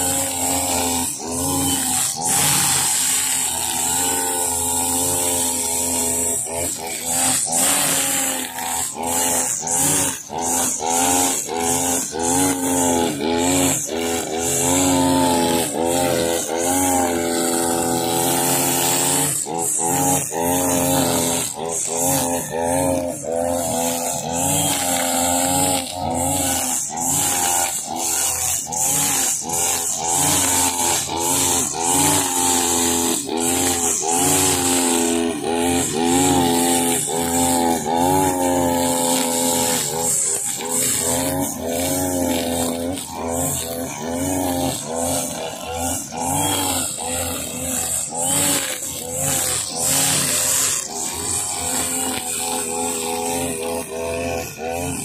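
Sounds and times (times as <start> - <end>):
brush cutter engine high revs: 0.0 - 55.0
trimmer line cutting grass: 0.0 - 55.0.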